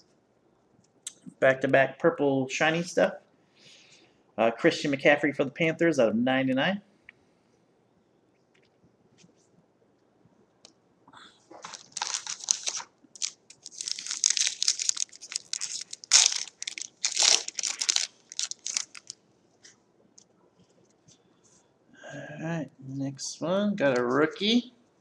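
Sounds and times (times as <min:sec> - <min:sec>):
foil wrapper tearing and crinkling: 0:11.6 - 0:19.2.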